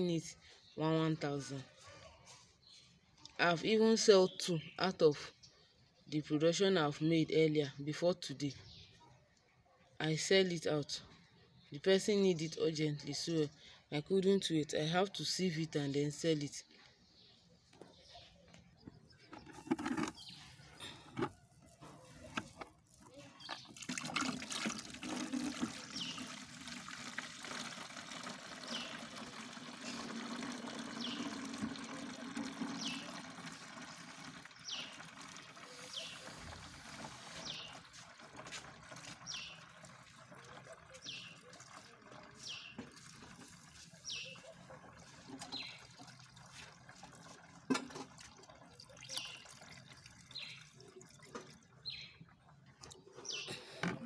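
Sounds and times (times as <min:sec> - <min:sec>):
liquid trickling through a sieve: 0:22.8 - 0:53.2.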